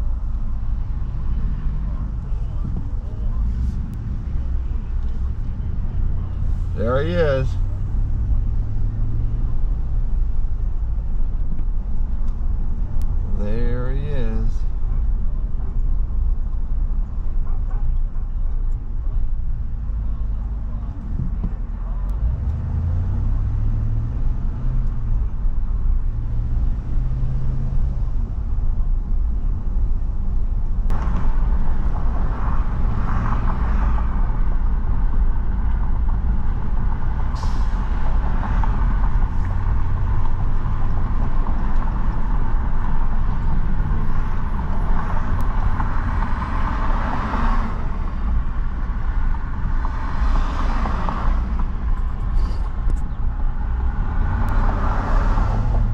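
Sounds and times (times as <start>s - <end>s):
car interior engine rumble: 0.0s - 55.9s
tyre hiss and passing traffic: 0.6s - 9.4s, 13.0s - 14.7s, 30.9s - 55.9s.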